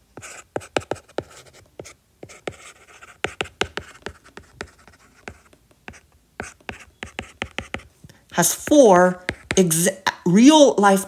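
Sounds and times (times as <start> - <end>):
stylus tapping on tablet screen: 3.2 - 9.7.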